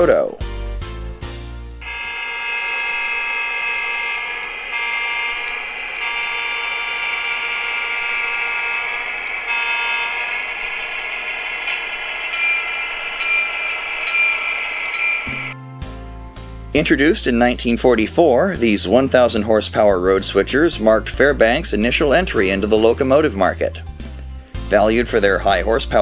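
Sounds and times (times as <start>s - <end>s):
buzzy diesel engine sound from speaker: 0.0s - 15.6s.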